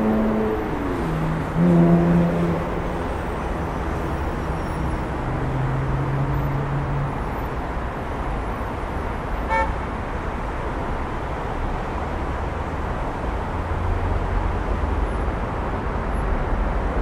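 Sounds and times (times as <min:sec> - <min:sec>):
passing vehicles: 0:00.0 - 0:17.0.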